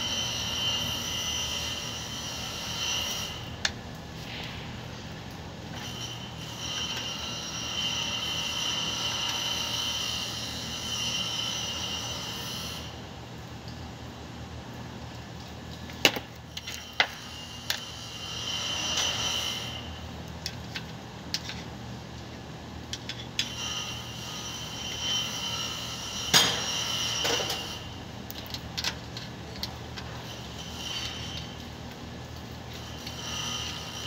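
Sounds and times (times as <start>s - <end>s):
high hissing whine: 0.0s - 13.1s
low shop hum: 0.0s - 34.0s.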